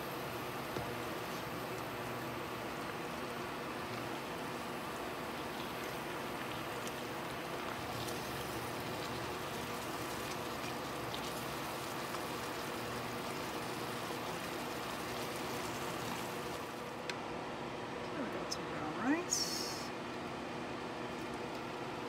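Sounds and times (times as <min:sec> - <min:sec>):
food sizzling in a frying pan: 0:00.9 - 0:16.8.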